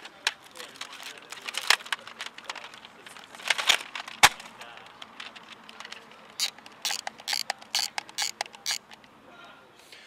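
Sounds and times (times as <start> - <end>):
camera thumbwheel ratcheting: 6.4 - 9.0
plastic camera shutter clicking: 6.4 - 9.0.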